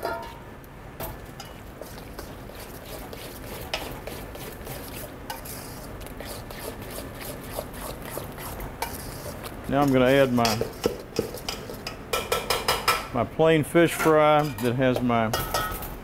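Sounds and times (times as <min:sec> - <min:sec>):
spoon scraping metal bowl: 0:01.4 - 0:12.0.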